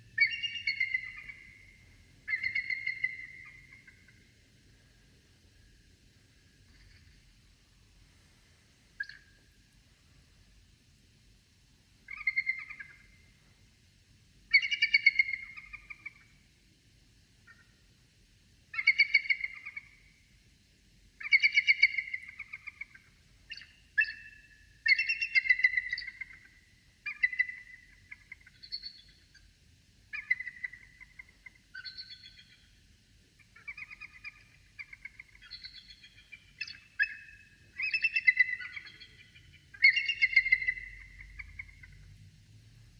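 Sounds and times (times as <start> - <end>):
bird chattering calls: 0.2 - 4.2, 21.2 - 26.5, 33.5 - 42.0.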